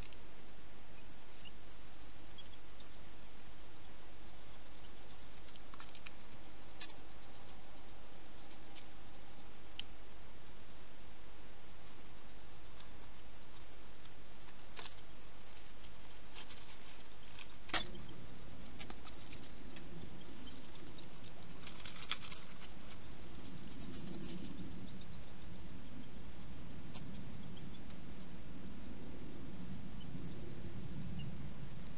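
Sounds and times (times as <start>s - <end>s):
hedgehog clicks and rustling: 3.6s - 10.8s, 11.8s - 28.0s.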